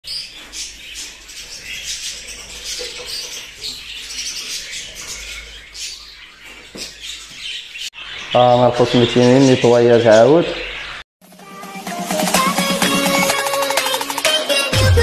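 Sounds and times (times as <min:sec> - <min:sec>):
budgerigars chattering and chirping: 0:00.0 - 0:11.0.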